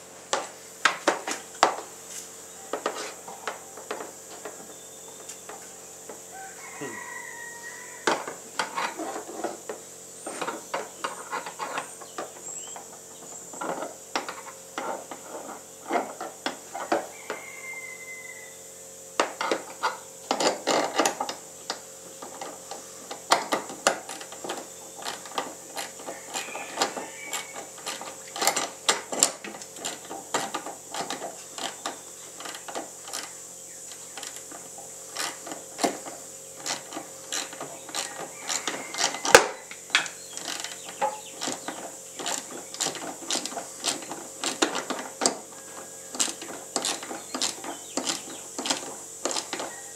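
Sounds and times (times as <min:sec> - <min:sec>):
tools clicking and tapping: 0:35.2 - 0:49.7.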